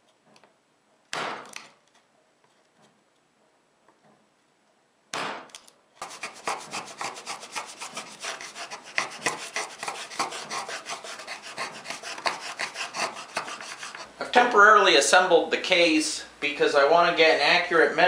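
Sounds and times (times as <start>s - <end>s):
blade scraping wood groove: 6.0s - 14.2s.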